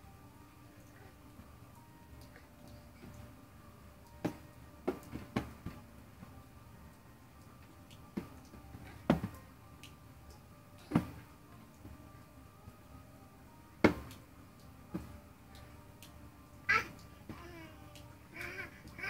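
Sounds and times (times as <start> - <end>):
baby knocking on cardboard boxes: 9.0 - 9.4.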